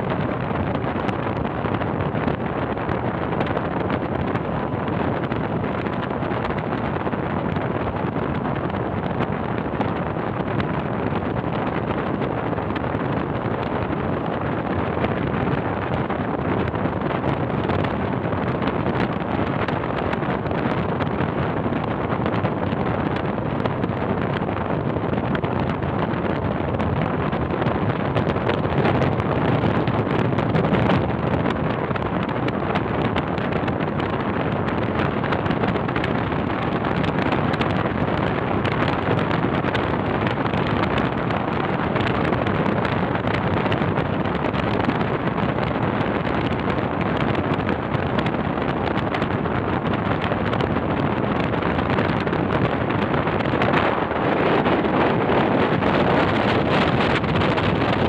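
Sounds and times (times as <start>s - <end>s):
car road and wind noise: 0.0s - 58.0s.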